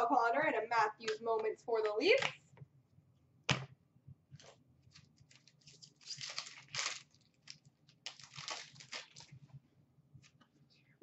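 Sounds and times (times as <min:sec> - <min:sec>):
wrapper crinkling and tearing: 0:04.9 - 0:09.4.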